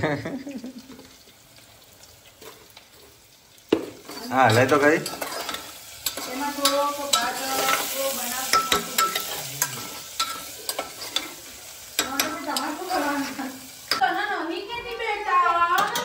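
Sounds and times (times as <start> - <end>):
onion sizzling in a pot: 0.0 - 16.0
spoon clinking and scraping pot: 2.3 - 14.0, 15.7 - 16.0.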